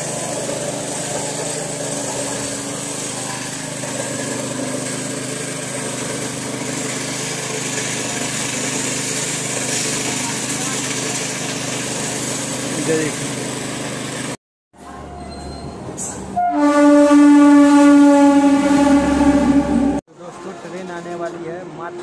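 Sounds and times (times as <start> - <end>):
small petrol engine running: 0.0 - 14.4.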